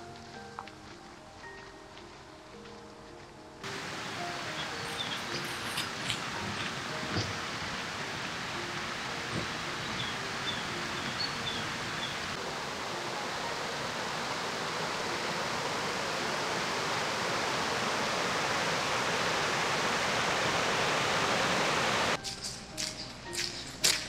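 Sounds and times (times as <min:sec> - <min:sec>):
brook rushing over rocks: 0:03.6 - 0:22.2.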